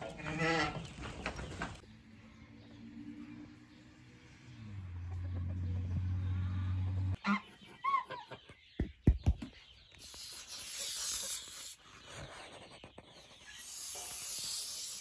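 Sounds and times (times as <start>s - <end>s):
goose hissing: 10.0s - 11.9s, 13.4s - 15.0s.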